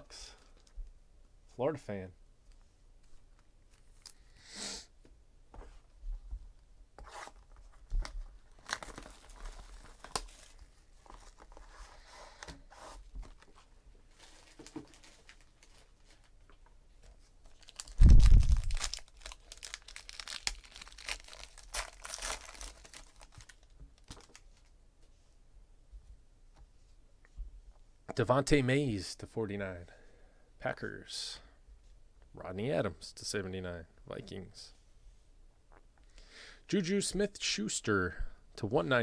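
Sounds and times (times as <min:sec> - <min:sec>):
foil wrapper tearing and crinkling: 0:08.5 - 0:10.7, 0:14.1 - 0:16.3, 0:17.5 - 0:24.4.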